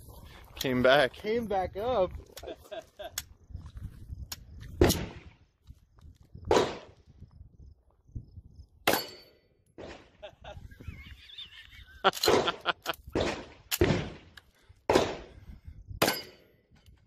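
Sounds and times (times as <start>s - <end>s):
loud gunshots: 4.8s - 5.3s, 6.5s - 7.0s, 12.2s - 14.3s, 14.9s - 15.4s
bullets clanging on steel targets: 8.9s - 9.5s, 16.0s - 16.6s.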